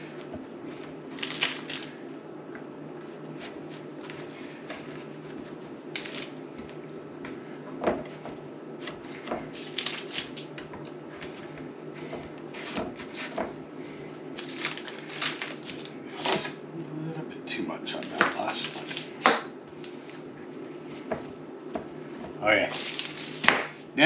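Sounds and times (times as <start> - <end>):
steady low hum: 0.0 - 24.0
plastic wrapper crinkling: 14.3 - 16.5, 22.7 - 23.4.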